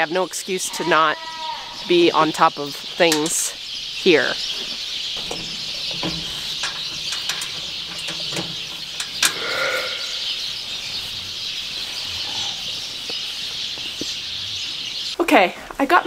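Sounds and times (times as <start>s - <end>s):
sheep bleating: 0.7s - 1.8s, 9.3s - 10.2s.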